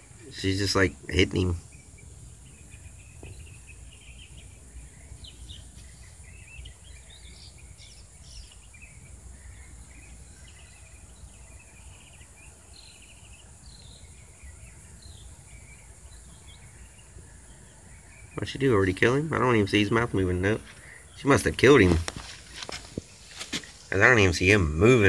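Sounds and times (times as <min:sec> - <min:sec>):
bird chirps: 0:00.0 - 0:25.0.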